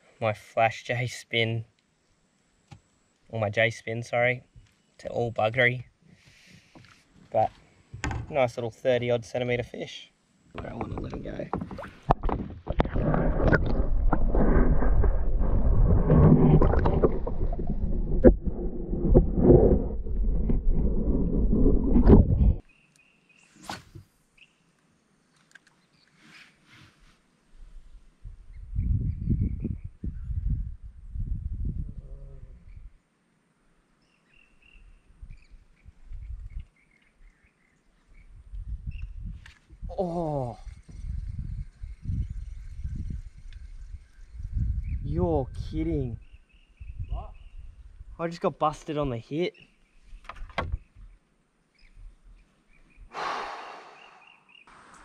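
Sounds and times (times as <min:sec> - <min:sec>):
muffled underwater sloshing: 0:11.6 - 0:20.3
low rumble: 0:12.7 - 0:22.6
birds chirping: 0:22.6 - 0:23.7, 0:33.9 - 0:39.3, 0:40.7 - 0:48.0, 0:49.4 - 0:55.0.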